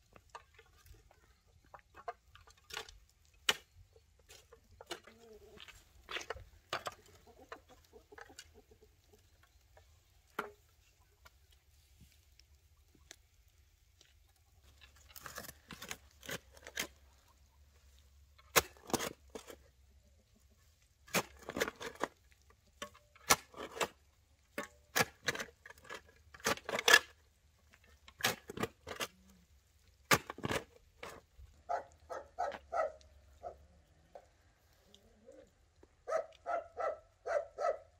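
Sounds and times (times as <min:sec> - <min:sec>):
spade digging in soil: 0:02.4 - 0:07.7, 0:14.7 - 0:17.2, 0:18.3 - 0:19.7, 0:21.0 - 0:29.5, 0:30.1 - 0:31.9.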